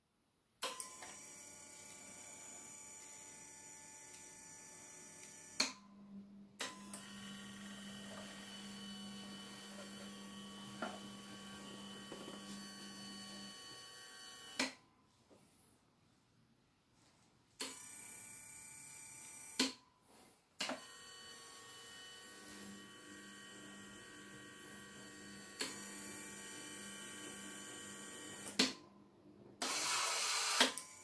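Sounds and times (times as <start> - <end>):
small electric motors whining: 0.9 - 5.8, 6.6 - 14.8, 20.8 - 28.6, 29.6 - 31.0.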